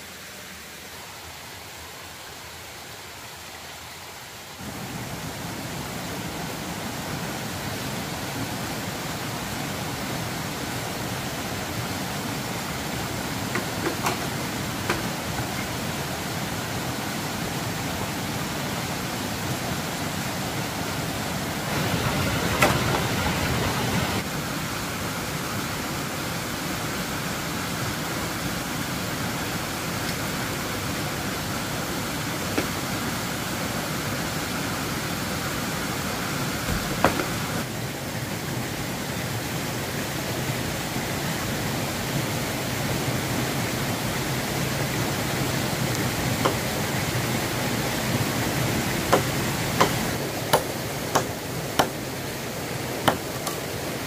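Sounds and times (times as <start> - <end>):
steady rushing noise: 20.4 - 26.9
sharp knocks: 49.1 - 52.0, 53.0 - 53.6.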